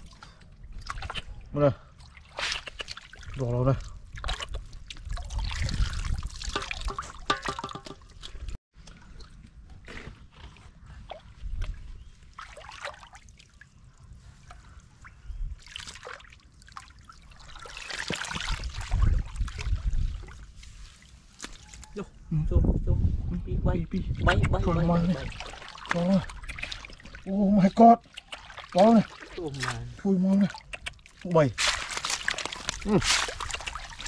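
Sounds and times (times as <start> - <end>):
water sloshing and splashing: 0.0 - 22.0, 24.1 - 34.0
water dripping: 2.0 - 9.8, 24.3 - 34.0.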